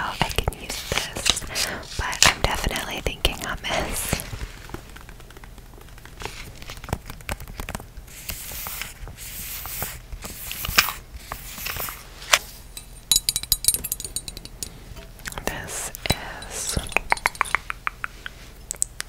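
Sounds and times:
glass ornament clinking: 0:12.7 - 0:17.7.

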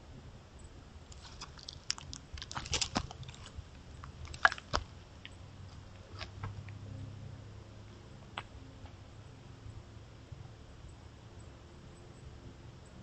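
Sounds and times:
elk crunching and snapping clicks: 0:01.1 - 0:06.8.

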